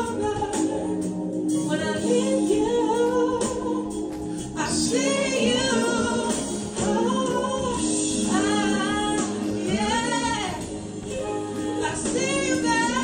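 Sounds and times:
woman singing into a microphone: 0.0s - 13.0s.

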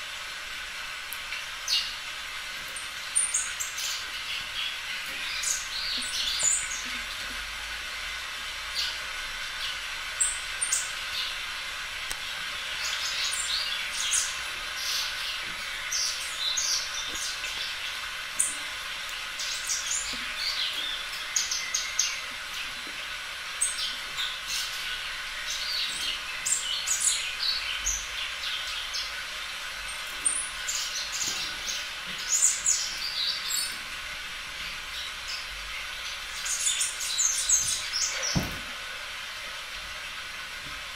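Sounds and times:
steady hiss: 0.0s - 40.9s
small birds chirping: 1.3s - 11.4s, 12.1s - 38.9s.

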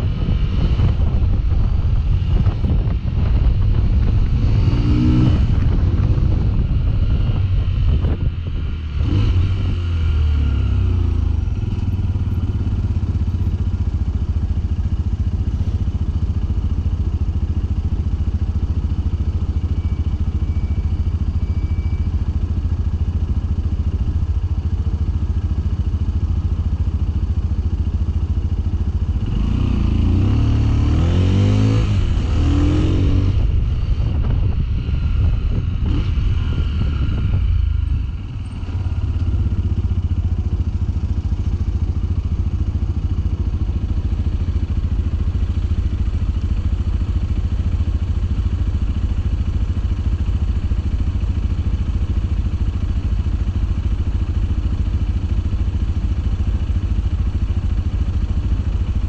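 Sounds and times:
motorcycle engine revving: 0.0s - 59.0s.

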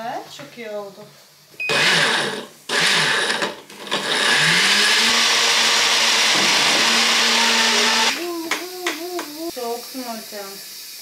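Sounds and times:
blender motor running: 1.7s - 8.3s.

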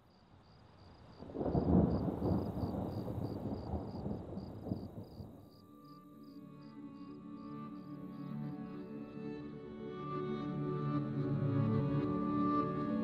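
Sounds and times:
rain: 0.0s - 5.9s
crickets chirping: 0.0s - 9.3s
thunder rumbling: 1.1s - 5.5s
soft music: 5.4s - 13.0s.

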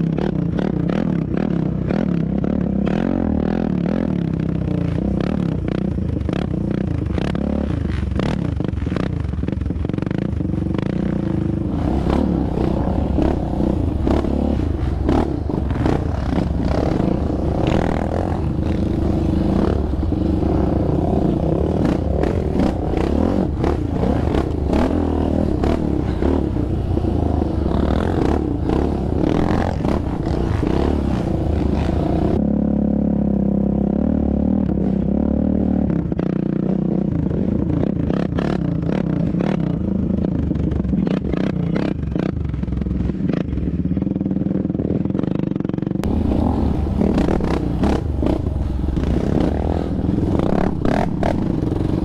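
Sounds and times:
quad engine revving: 10.0s - 33.0s, 46.0s - 52.0s.

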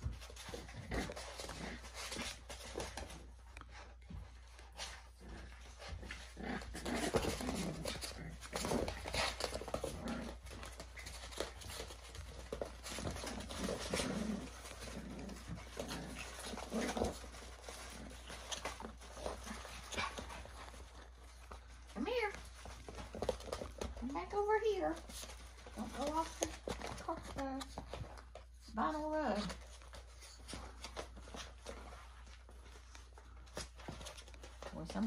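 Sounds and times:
puppies growling and whining: 0.0s - 24.0s, 25.0s - 28.5s.

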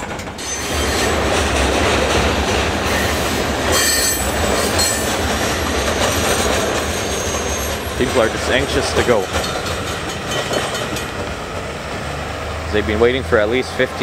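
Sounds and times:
train wheels rumbling on rails: 0.0s - 14.0s
high wheel squeal: 0.4s - 1.2s, 2.9s - 9.2s.

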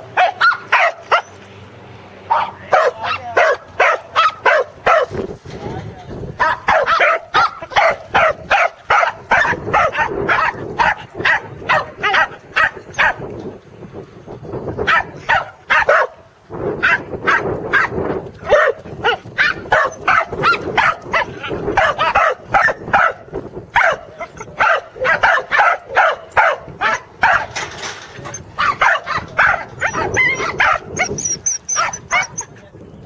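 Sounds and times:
dog barking sharply: 0.2s - 1.3s, 2.3s - 5.2s, 6.4s - 13.2s, 14.9s - 16.2s, 16.8s - 23.2s, 23.8s - 24.0s, 24.6s - 27.5s, 28.6s - 31.2s.

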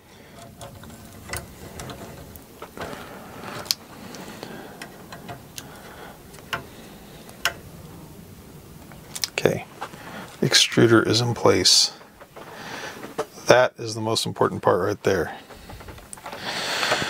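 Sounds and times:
low rustle of handling: 0.1s - 13.4s
small tool clicks and rattles: 0.3s - 2.8s.

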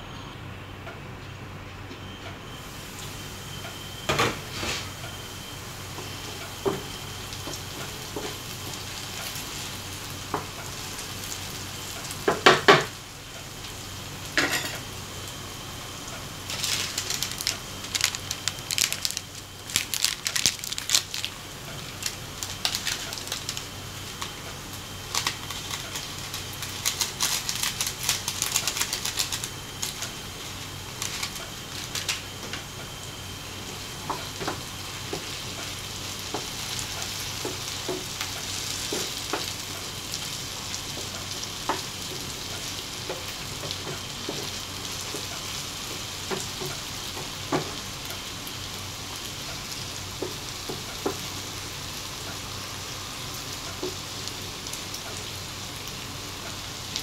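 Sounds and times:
food sizzling in a pan: 2.6s - 57.0s
kitchenware clattering: 14.4s - 14.8s.

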